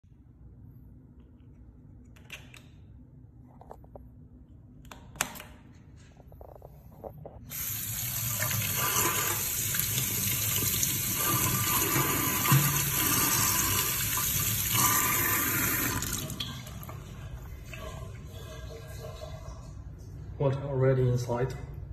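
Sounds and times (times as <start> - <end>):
tap water splashing into sink: 8.2 - 14.8.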